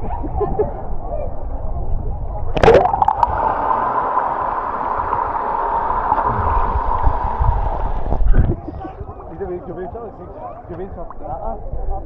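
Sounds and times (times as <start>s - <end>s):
muffled underwater rush and bubbling: 2.5s - 9.4s
diver splashing into water: 2.6s - 7.4s.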